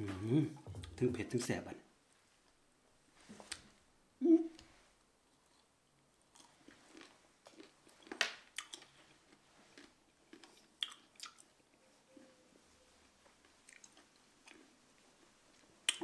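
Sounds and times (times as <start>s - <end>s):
person chewing berries: 5.3s - 11.7s, 13.4s - 16.0s.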